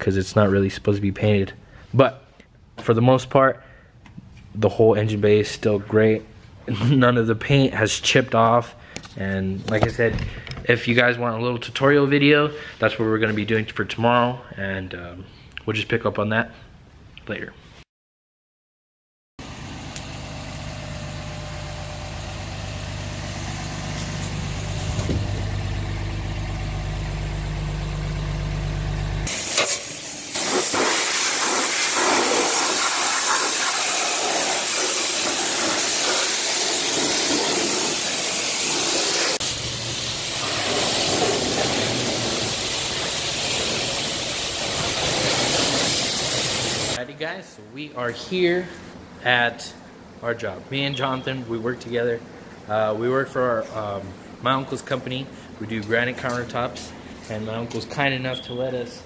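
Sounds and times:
low engine hum: 19.5s - 29.3s
pressure washer spraying water: 29.3s - 47.0s.

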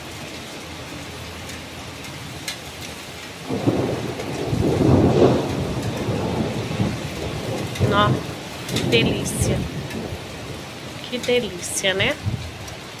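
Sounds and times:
steady rain falling: 0.0s - 13.0s
thunder rolling: 3.4s - 12.7s.

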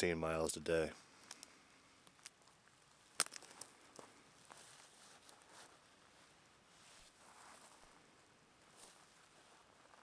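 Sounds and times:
faint steady hiss: 0.0s - 10.0s
soft rustles: 3.4s - 10.0s.

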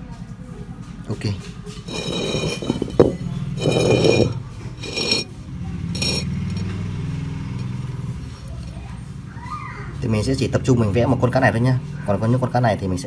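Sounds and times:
glass clinking and rattling: 1.8s - 5.3s, 5.9s - 6.8s.

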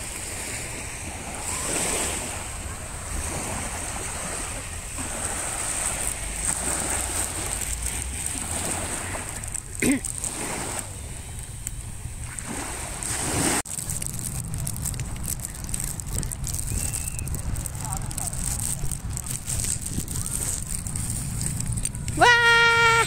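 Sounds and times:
small waves washing on beach: 0.0s - 23.0s
short pitched cry: 22.2s - 23.0s.

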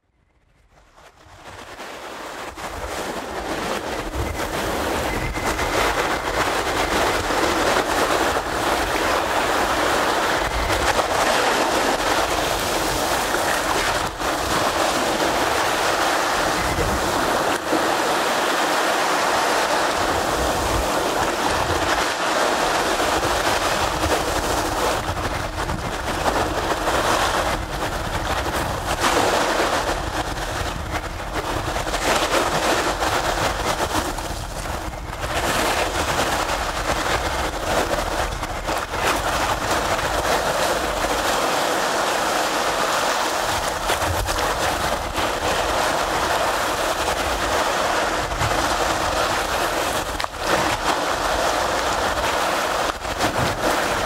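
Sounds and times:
small waves breaking on sandy beach: 1.3s - 54.0s.

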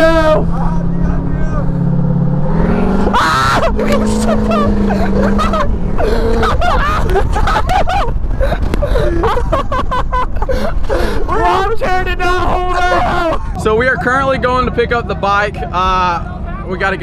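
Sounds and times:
voices calling out: 0.0s - 7.9s, 10.6s - 17.0s
truck engine: 0.0s - 17.0s
wind and road rumble: 0.0s - 17.0s.

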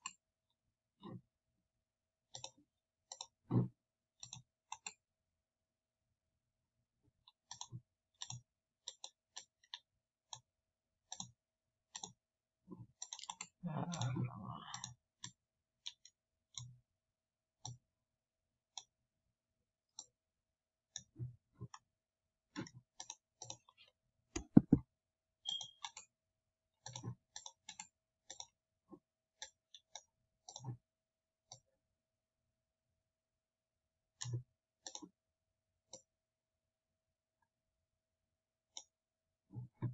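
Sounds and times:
computer mouse clicking: 2.3s - 5.0s, 7.3s - 13.6s, 14.7s - 16.8s, 22.6s - 24.8s, 25.4s - 26.1s, 26.8s - 28.6s, 29.4s - 30.8s, 34.2s - 35.2s, 38.7s - 39.0s.

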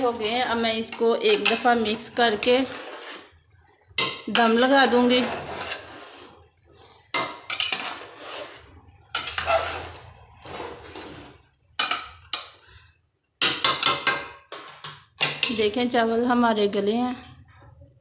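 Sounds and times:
metal spoon scraping a metal pot: 0.0s - 3.4s, 4.0s - 12.6s.

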